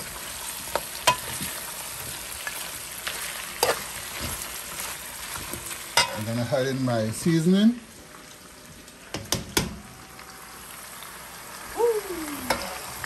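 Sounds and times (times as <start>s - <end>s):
meat sizzling in a pot: 0.0s - 13.0s.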